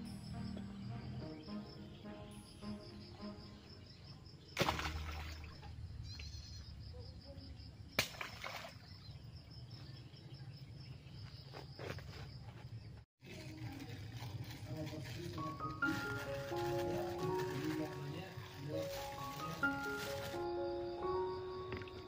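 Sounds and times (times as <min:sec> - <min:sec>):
crickets chirping: 0:00.0 - 0:13.0, 0:14.8 - 0:22.0
scraps splashing into pond: 0:04.6 - 0:05.8, 0:08.0 - 0:09.1.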